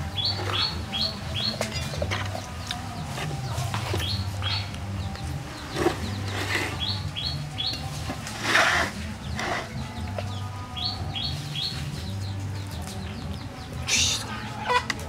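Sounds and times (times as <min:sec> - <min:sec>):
small birds chirping: 0:00.0 - 0:15.0
cleaver scraping fish: 0:05.6 - 0:10.3.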